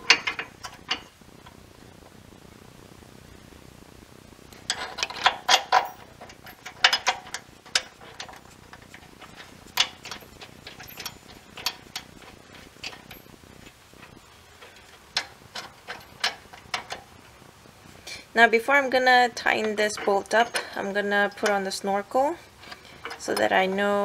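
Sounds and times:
metallic clicks and clinks: 0:04.5 - 0:17.1.

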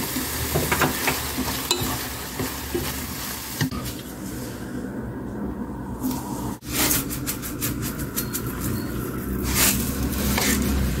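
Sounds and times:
eggplant sizzling in a hot pan: 0:00.0 - 0:03.7.

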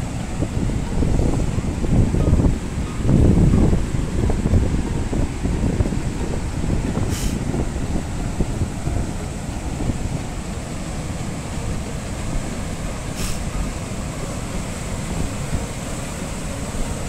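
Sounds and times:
surf breaking over rocks: 0:00.0 - 0:17.0
wind buffeting microphone: 0:00.0 - 0:17.0.

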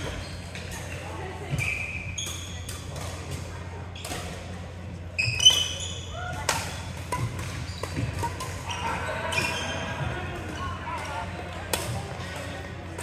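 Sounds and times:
sneakers squeaking on floor: 0:00.0 - 0:03.3, 0:05.0 - 0:10.9
voices in hall: 0:00.0 - 0:13.0
rackets hitting shuttlecock: 0:05.3 - 0:13.0.

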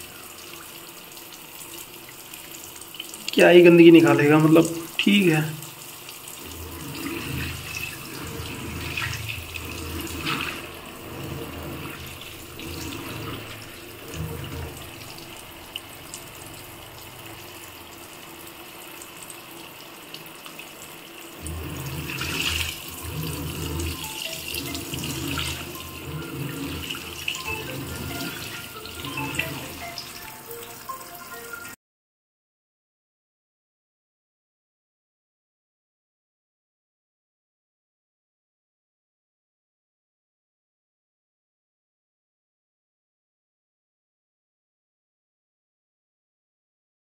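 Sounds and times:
washing machine churning rumble: 0:00.0 - 0:31.0
water stream into drum: 0:00.0 - 0:31.8.

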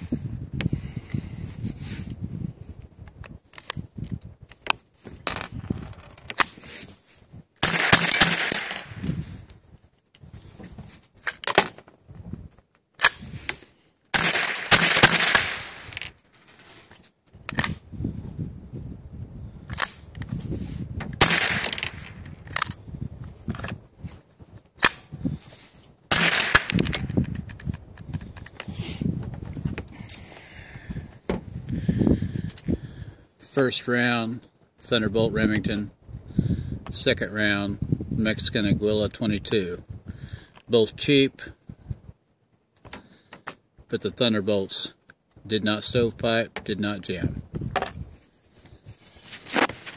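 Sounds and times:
rifle shots cracking: 0:07.6 - 0:09.0, 0:14.1 - 0:16.1, 0:21.2 - 0:22.2, 0:26.1 - 0:27.1.

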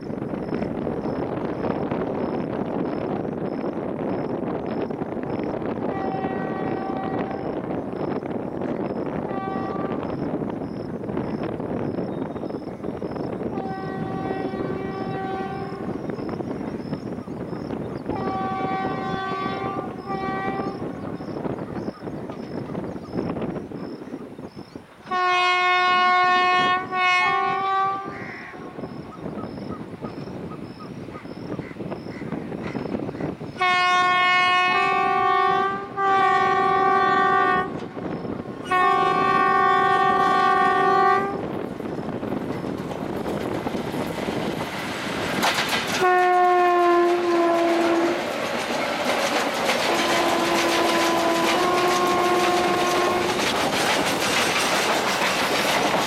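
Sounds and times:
train wheel noise: 0:00.0 - 0:56.0
locomotive horn blasts: 0:05.8 - 0:07.6, 0:09.2 - 0:10.2, 0:13.5 - 0:15.9, 0:18.1 - 0:20.9, 0:25.1 - 0:28.6, 0:33.6 - 0:41.5, 0:46.0 - 0:48.3, 0:49.9 - 0:53.4.

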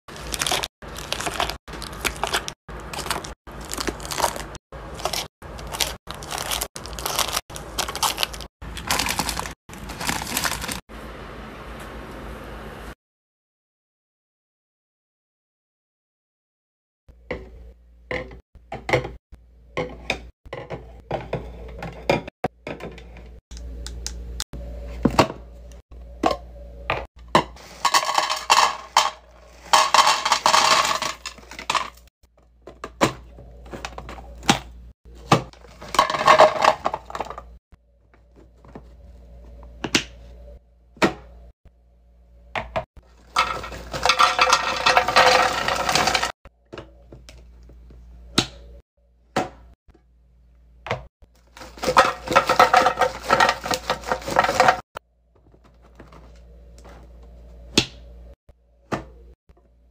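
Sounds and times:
bag crinkling: 0:00.1 - 0:10.8
candy pouring into plastic canister: 0:00.1 - 0:10.8, 0:27.6 - 0:31.8, 0:43.3 - 0:46.3.

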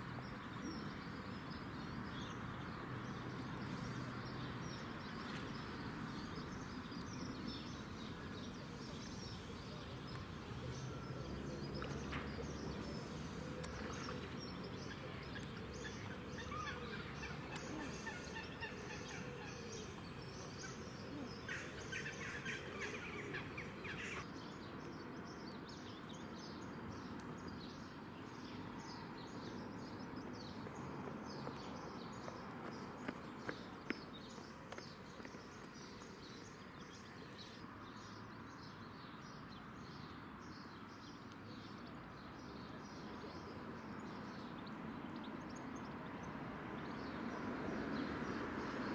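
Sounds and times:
small birds chirping: 0:00.1 - 0:48.9
waterfowl calling: 0:15.9 - 0:24.2.

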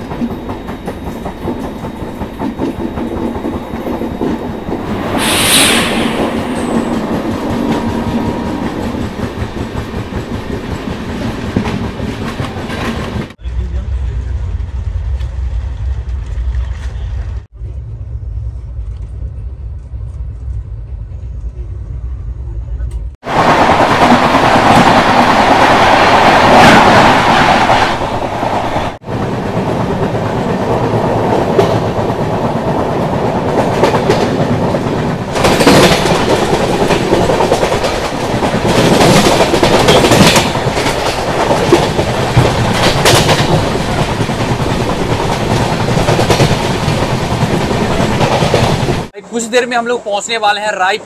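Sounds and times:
clickety-clack of rail joints: 0:00.0 - 0:05.0, 0:06.7 - 0:13.4, 0:27.5 - 0:49.1
train wheels rushing on rails: 0:00.0 - 0:22.1, 0:22.9 - 0:51.0
passing train: 0:00.0 - 0:51.0.

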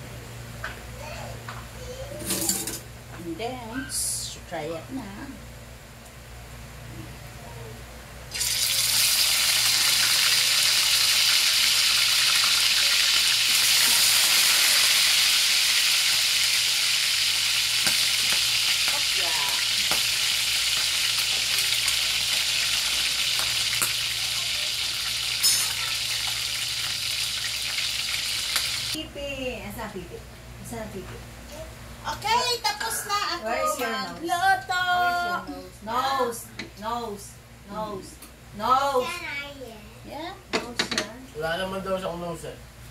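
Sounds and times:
chicken sizzling in hot oil: 0:08.3 - 0:29.0.

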